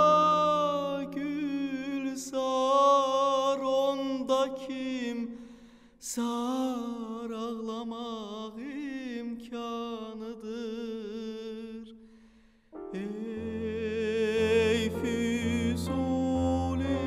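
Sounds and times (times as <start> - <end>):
piano chords: 0.0 - 2.8, 12.7 - 17.0
man singing operatically: 0.0 - 5.4, 6.0 - 11.9, 12.9 - 17.0.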